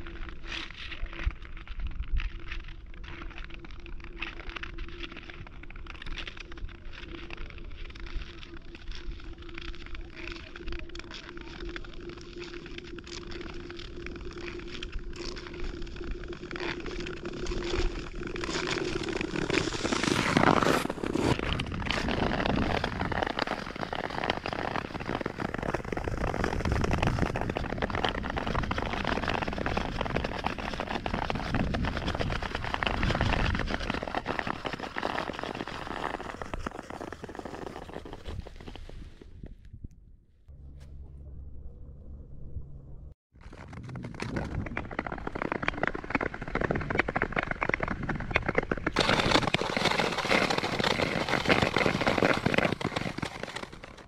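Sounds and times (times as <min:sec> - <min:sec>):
ice crackling: 0:00.0 - 0:39.5, 0:43.4 - 0:54.0
ice skates scraping over ice: 0:00.0 - 0:39.5, 0:43.4 - 0:54.0.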